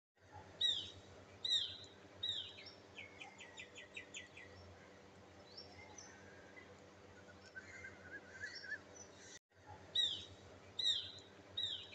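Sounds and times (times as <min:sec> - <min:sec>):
low background hum: 0:00.2 - 0:11.9
bird calling with whistles: 0:07.2 - 0:09.0, 0:10.0 - 0:11.9.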